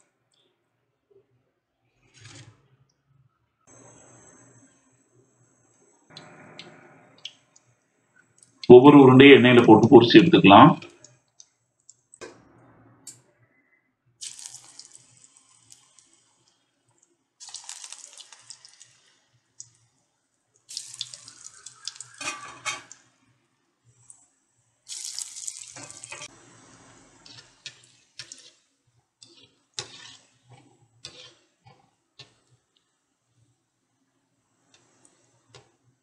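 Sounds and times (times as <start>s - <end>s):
frying crackles: 3.7s - 9.0s, 14.2s - 36.0s
oil sizzling in deep frying: 14.2s - 33.6s, 34.3s - 36.0s.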